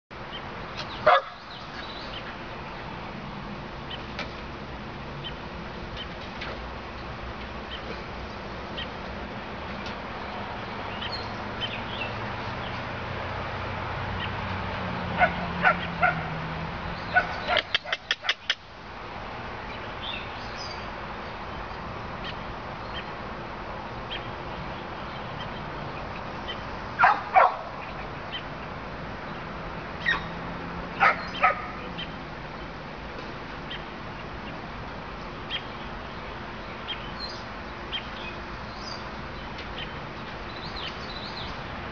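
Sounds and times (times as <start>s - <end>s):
dogs barking: 1.0s - 1.4s, 15.1s - 16.4s, 17.1s - 18.6s, 27.0s - 27.8s, 31.0s - 31.8s.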